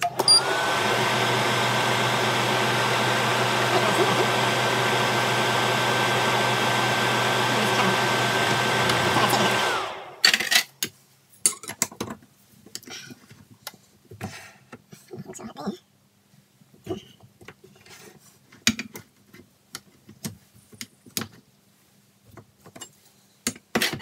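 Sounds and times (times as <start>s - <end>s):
metal lathe whining: 0.1s - 10.2s.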